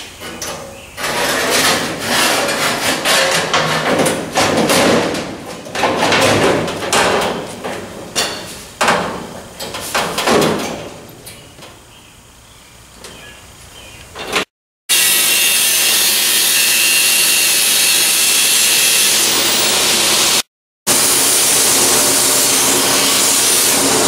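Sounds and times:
steel panels clanging and scraping: 0:00.0 - 0:11.9, 0:14.1 - 0:14.5.

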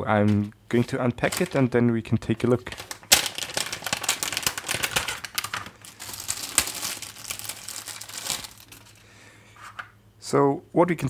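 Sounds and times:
plastic bags crinkling: 0:00.8 - 0:09.1.

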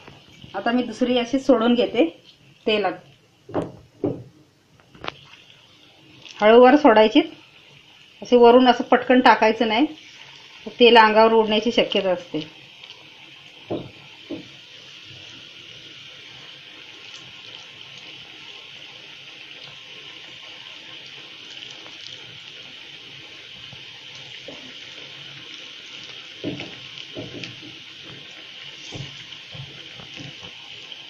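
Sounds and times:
batter sizzling in hot oil: 0:00.0 - 0:31.0
soft thumps: 0:03.5 - 0:04.3, 0:13.7 - 0:14.5.

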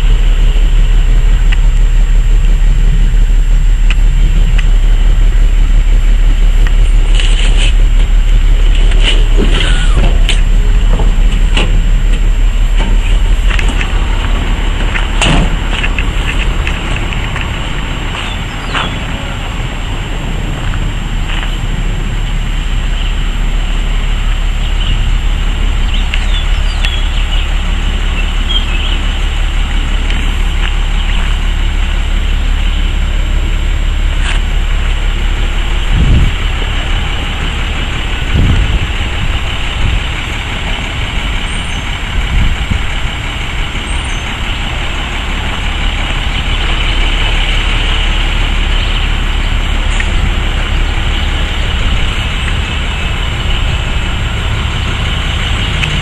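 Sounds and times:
diesel truck engine idling: 0:00.0 - 0:56.0
low thumps: 0:00.0 - 0:56.0.

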